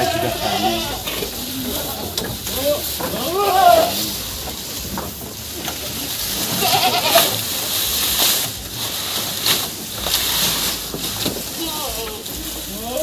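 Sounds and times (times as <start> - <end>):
goat bleating: 0.0 - 2.0, 2.6 - 4.4, 6.3 - 7.6
leaves rustling and crackling: 0.0 - 13.0.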